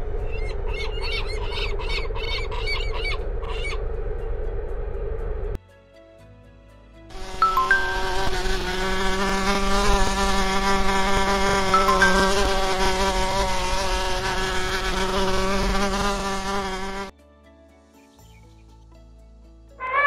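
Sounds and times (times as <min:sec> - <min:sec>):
wasps buzzing: 0:07.1 - 0:17.1.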